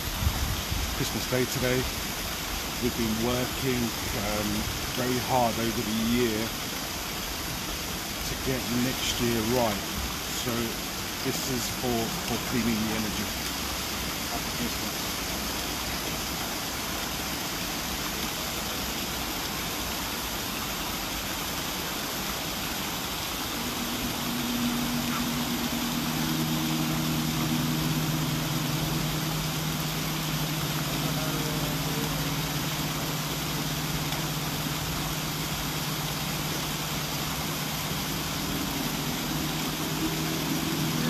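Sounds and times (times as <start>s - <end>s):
waterfall rushing: 0.0s - 41.0s
gong humming: 23.1s - 41.0s.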